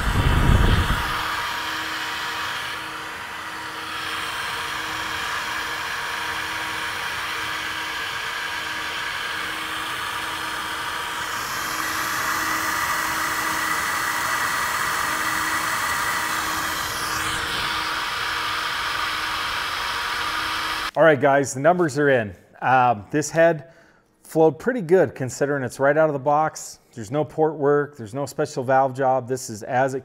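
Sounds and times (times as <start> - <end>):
fans rushing air: 0.0 - 21.0
steady hums: 0.0 - 21.0.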